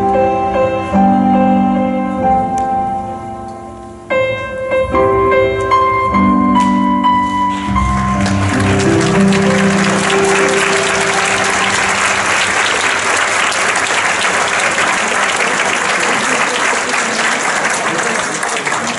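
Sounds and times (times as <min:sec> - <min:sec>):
piano music: 0:00.0 - 0:16.1
large audience applauding: 0:07.6 - 0:18.9.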